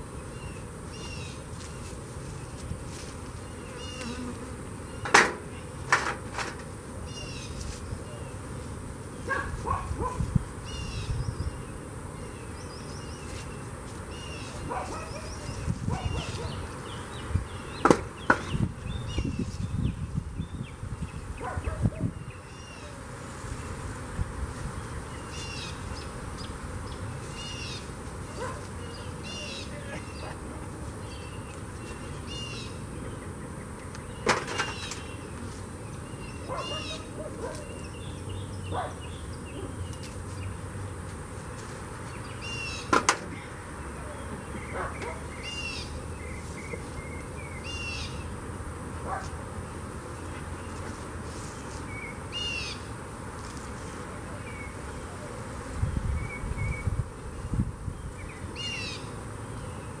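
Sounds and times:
bees humming: 0.0 - 6.0, 22.0 - 37.2
songbird singing: 0.0 - 41.2, 42.0 - 60.0.

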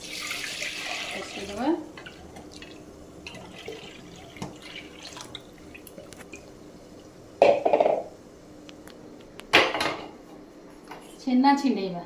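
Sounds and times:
liquid dripping: 0.0 - 7.2.

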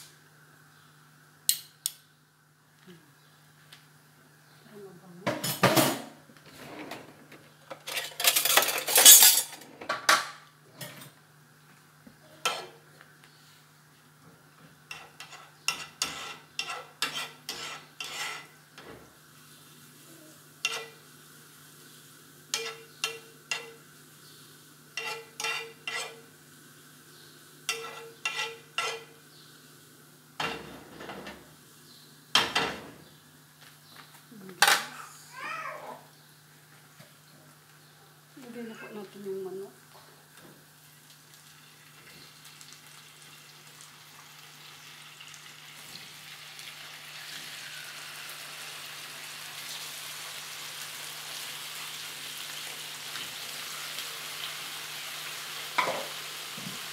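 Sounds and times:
spoon scraping frying pan: 12.4 - 12.8, 14.9 - 18.6, 20.6 - 21.0, 22.5 - 23.8, 24.9 - 26.4, 27.7 - 29.2
garlic sizzling in oil: 14.7 - 30.5, 40.2 - 56.9.

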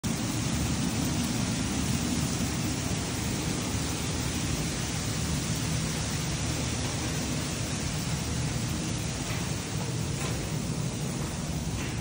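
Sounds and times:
rain on tarpaulin: 0.0 - 12.0.

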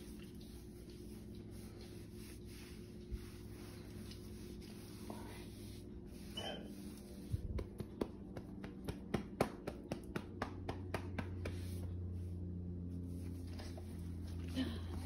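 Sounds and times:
dog licking at tile floor: 0.0 - 5.4
low steady hum: 0.0 - 15.0.

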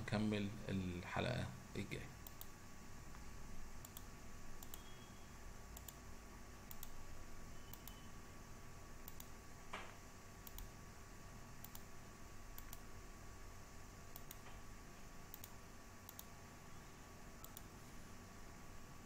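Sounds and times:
faint steady hum: 0.0 - 19.0
faint high ticks: 3.8 - 4.9, 6.7 - 7.0, 9.0 - 9.3, 11.6 - 11.9, 15.3 - 16.3, 17.4 - 17.7.

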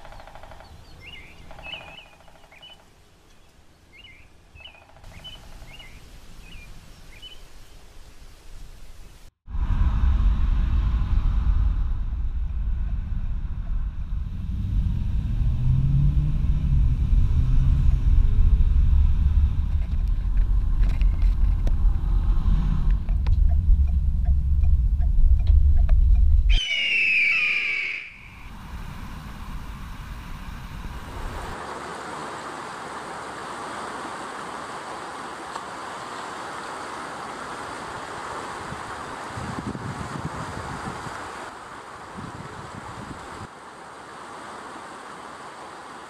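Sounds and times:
car road rumble: 9.5 - 26.5
steady rushing noise: 9.5 - 26.5, 28.2 - 34.9.

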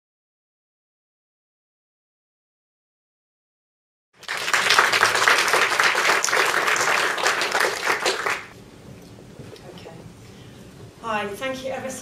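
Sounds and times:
audience applauding: 4.2 - 8.6.

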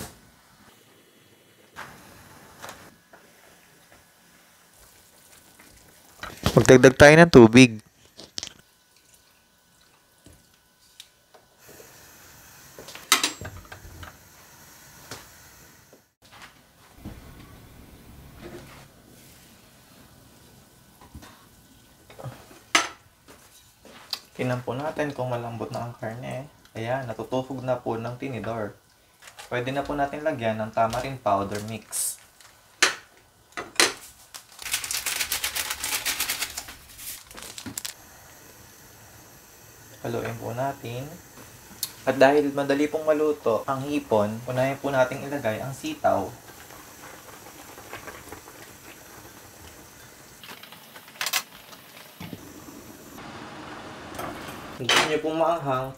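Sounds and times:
faint steady hiss: 0.0 - 55.9
foil sachet crinkling: 34.0 - 38.0
faint hiss: 36.2 - 53.3.

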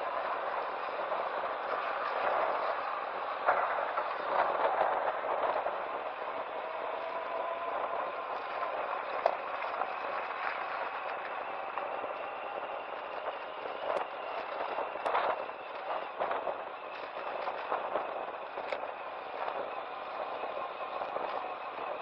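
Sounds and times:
motorcycle road and wind noise: 0.0 - 22.0.

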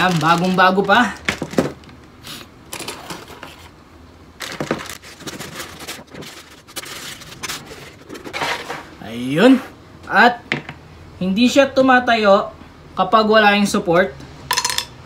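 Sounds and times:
plastic bag crinkling: 0.0 - 2.2, 4.4 - 8.7.

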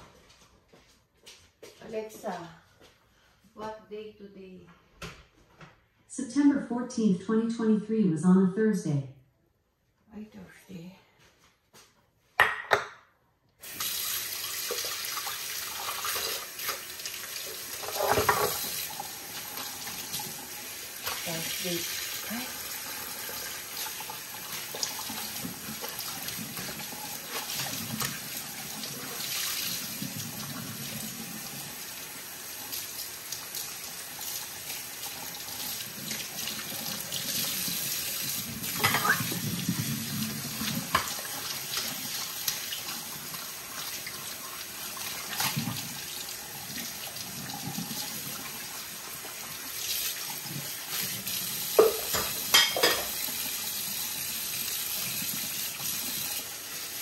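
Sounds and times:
tap water running into sink: 13.6 - 57.0.

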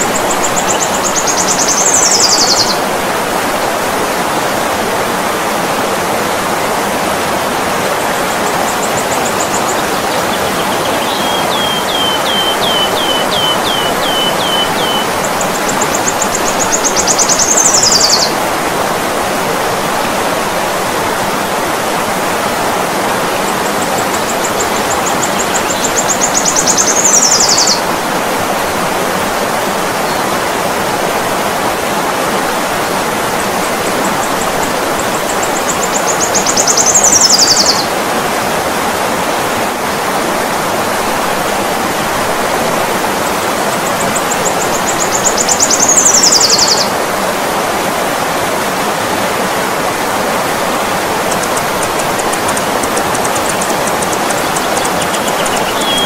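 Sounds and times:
stream rushing over rocks: 0.0 - 56.0
hummingbird chittering: 51.3 - 56.0.

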